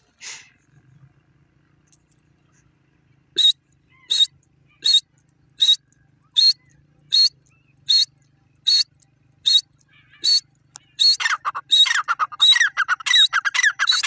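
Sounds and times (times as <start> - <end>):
francolin calling: 3.4 - 14.0.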